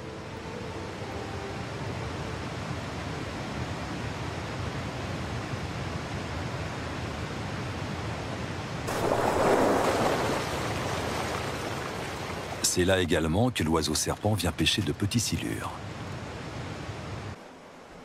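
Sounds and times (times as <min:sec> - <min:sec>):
animal splashing into water: 0:08.9 - 0:12.6.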